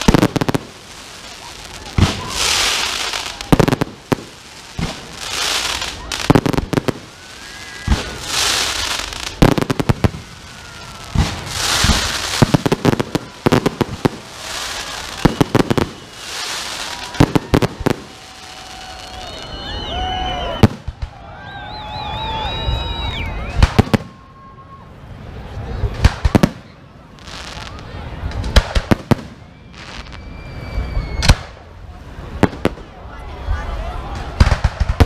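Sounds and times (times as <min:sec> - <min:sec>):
fireworks bangs: 0:00.0 - 0:21.2, 0:23.5 - 0:24.2, 0:25.9 - 0:35.0
fireworks shells hissing: 0:11.0 - 0:17.5.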